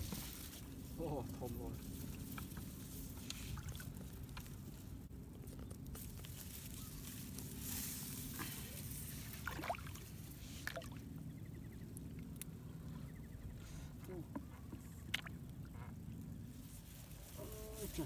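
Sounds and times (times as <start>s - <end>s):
grass rustling: 0.0s - 10.9s, 16.4s - 18.0s
splashing in shallow water: 8.5s - 11.0s.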